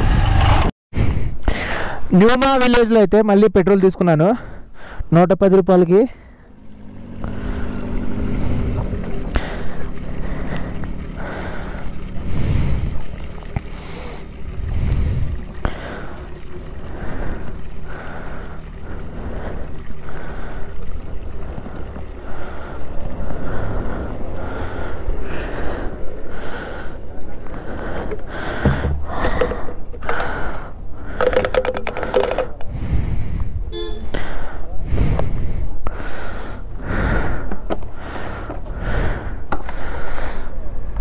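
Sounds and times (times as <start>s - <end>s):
motorcycle engine running: 6.2s - 30.4s
wind rushing over microphone: 32.6s - 33.8s.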